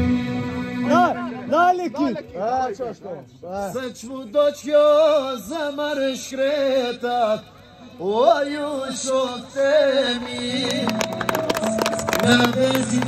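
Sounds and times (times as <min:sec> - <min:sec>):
man singing into a microphone: 0:03.6 - 0:13.0.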